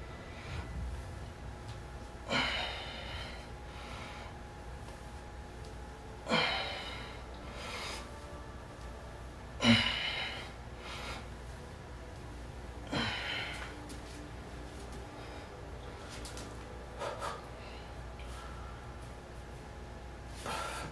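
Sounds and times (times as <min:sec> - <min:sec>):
man breathing hard: 0:02.2 - 0:04.4, 0:09.6 - 0:11.4, 0:16.9 - 0:19.1, 0:20.3 - 0:20.9.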